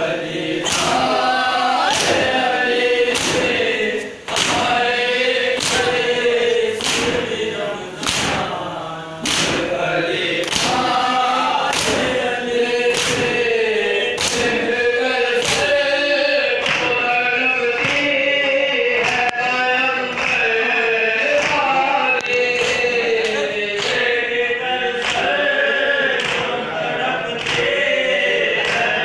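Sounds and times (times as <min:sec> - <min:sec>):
men chanting in chorus: 0:00.0 - 0:29.0
hands slapping chests: 0:00.6 - 0:01.2, 0:03.1 - 0:03.6, 0:04.3 - 0:04.7, 0:05.6 - 0:06.0, 0:06.8 - 0:07.2, 0:08.0 - 0:08.5, 0:09.2 - 0:09.8, 0:10.4 - 0:10.9, 0:11.6 - 0:12.2, 0:12.9 - 0:13.5, 0:14.2 - 0:14.6, 0:15.4 - 0:15.8.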